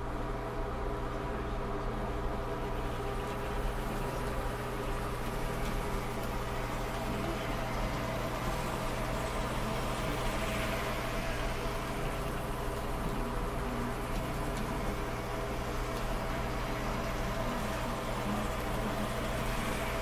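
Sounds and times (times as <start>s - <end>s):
model train motor humming: 2.7s - 20.0s.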